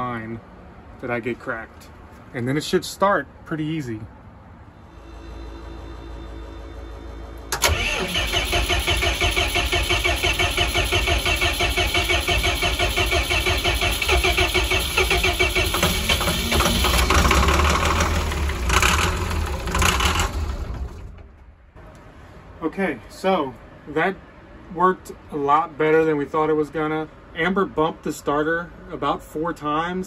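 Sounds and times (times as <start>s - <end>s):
diesel engine cranking: 6.7s - 21.8s.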